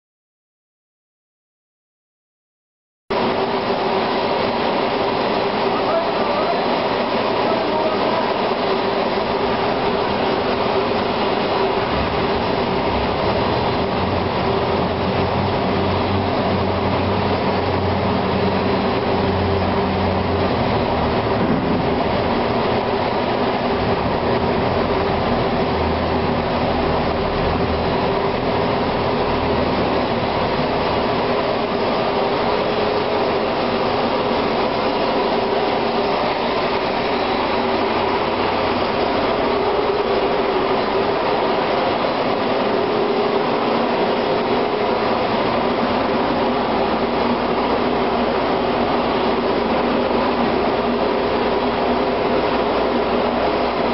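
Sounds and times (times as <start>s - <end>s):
industrial vacuum roaring: 3.1s - 53.9s
steady hum: 3.1s - 53.9s
deep rumble: 9.4s - 37.4s.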